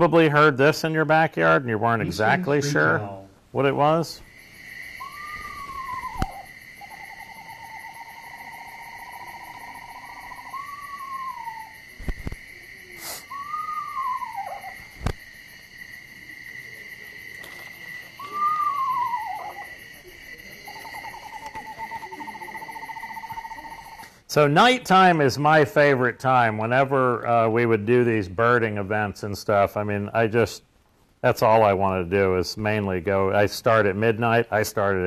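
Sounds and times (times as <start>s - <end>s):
steady high background tone: 0.0s - 24.8s
owl whinnies and trills: 5.0s - 8.4s, 9.0s - 11.8s, 13.2s - 14.9s, 18.2s - 19.8s.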